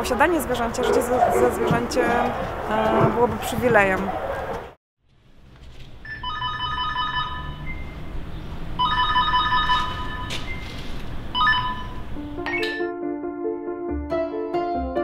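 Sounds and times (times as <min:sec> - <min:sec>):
electronic ringing tone: 0:06.1 - 0:07.9, 0:08.8 - 0:10.4, 0:11.4 - 0:12.9.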